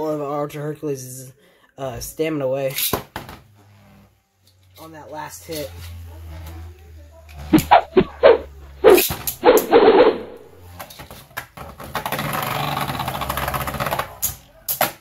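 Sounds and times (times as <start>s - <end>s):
spinning tops launching: 7.5s - 10.5s.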